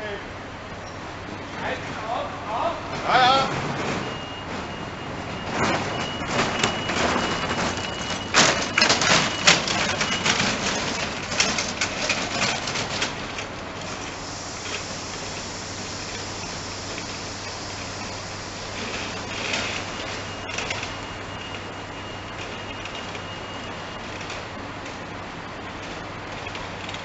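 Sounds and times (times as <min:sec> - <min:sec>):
train wheels clattering: 0:03.5 - 0:21.7
train hiss: 0:13.7 - 0:20.4.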